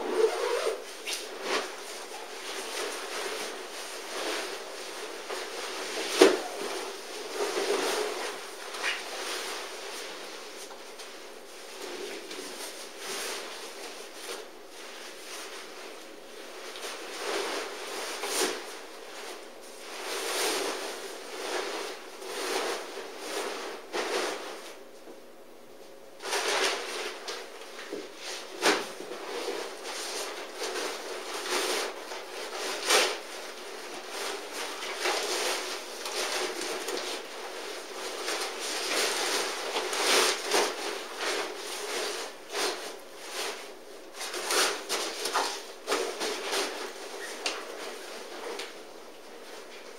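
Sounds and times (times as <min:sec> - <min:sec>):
tent fabric rustling: 0:00.0 - 0:10.4.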